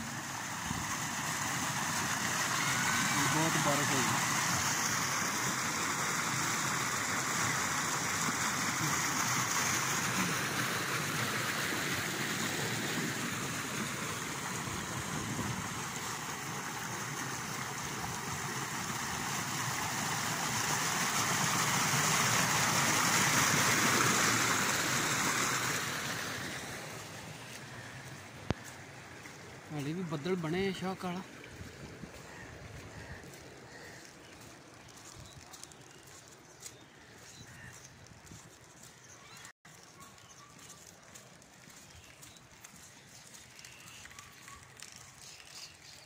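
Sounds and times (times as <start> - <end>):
water gushing through a drain: 0.0 - 27.3.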